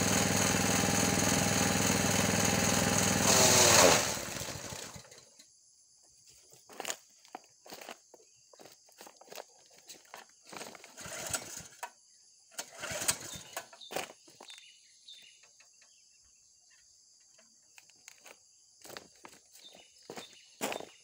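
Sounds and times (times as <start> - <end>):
small petrol engine pull-starting: 0.0 - 5.4, 10.6 - 13.9.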